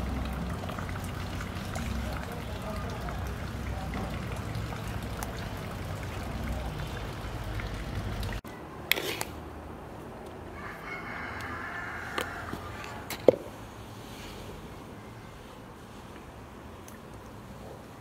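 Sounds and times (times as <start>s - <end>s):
rooster crowing: 10.5s - 13.1s.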